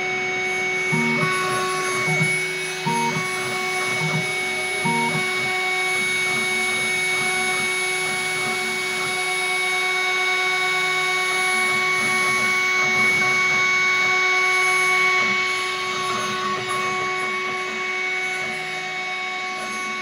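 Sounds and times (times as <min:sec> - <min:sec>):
spindle motor whine: 0:00.0 - 0:20.0
stepper motors humming: 0:00.4 - 0:09.3.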